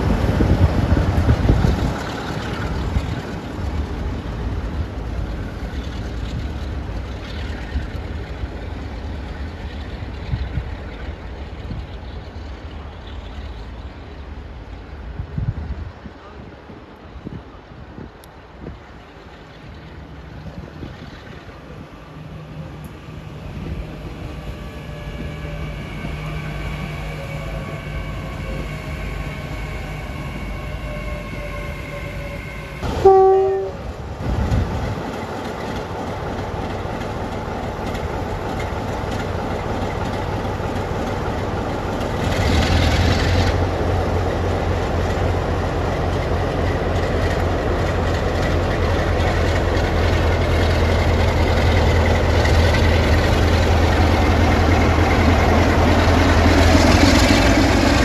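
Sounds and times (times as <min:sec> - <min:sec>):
deep locomotive engine rumble: 0:00.0 - 0:58.0
diesel locomotive engine whine: 0:00.0 - 0:58.0
two-tone train horn blast: 0:24.5 - 0:33.9.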